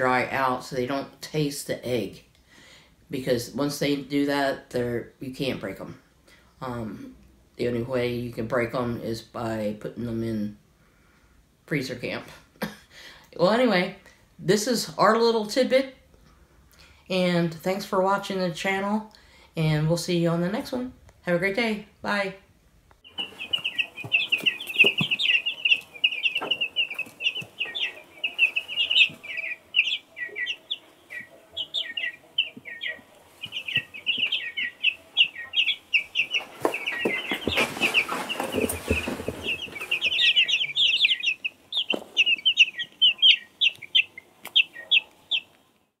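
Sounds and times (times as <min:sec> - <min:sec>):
chicks peeping: 0:23.0 - 0:45.9.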